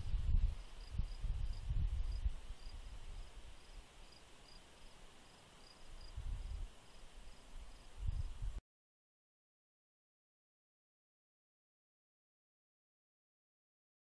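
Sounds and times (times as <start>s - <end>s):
faint steady hiss: 0.0s - 8.6s
cricket chirping: 0.6s - 7.9s.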